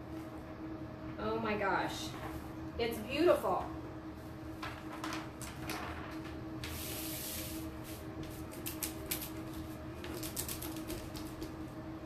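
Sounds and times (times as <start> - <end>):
plastic sheet rustling and sliding: 4.5 - 8.5.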